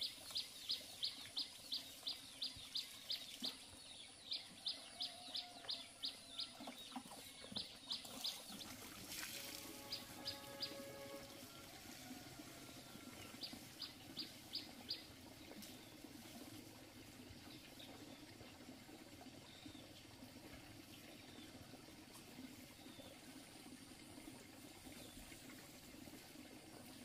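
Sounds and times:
bird chirping: 9.4s - 11.2s.

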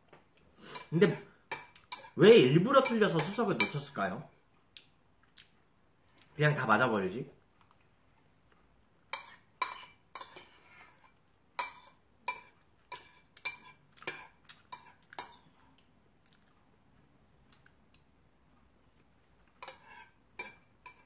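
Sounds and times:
metal utensil clinking against bowl: 2.8s - 3.9s, 19.6s - 21.0s.

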